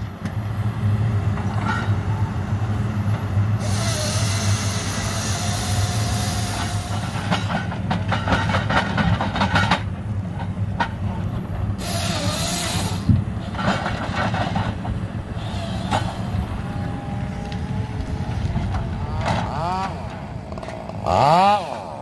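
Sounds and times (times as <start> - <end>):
diesel engine running: 0.0 - 22.0
wavering whine: 14.6 - 20.7.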